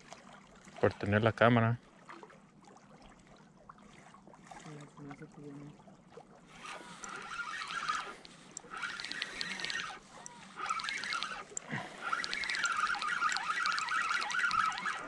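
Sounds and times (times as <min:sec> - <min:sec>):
waves lapping against rocks: 0:04.0 - 0:15.0.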